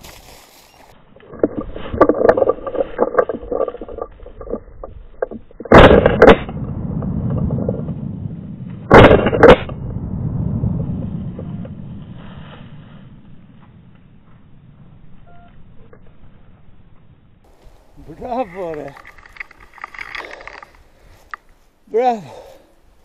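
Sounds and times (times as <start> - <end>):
brush and twigs crackling: 0.0 - 6.2, 11.8 - 21.9.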